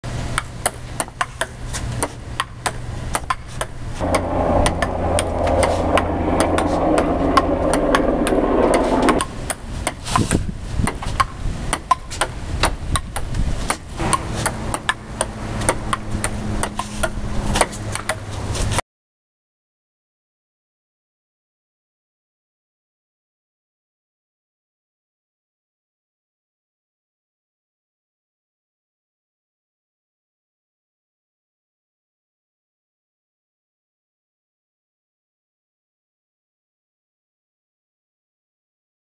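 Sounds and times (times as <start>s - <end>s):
loud rumbling noise: 4.0s - 9.4s, 14.0s - 17.6s.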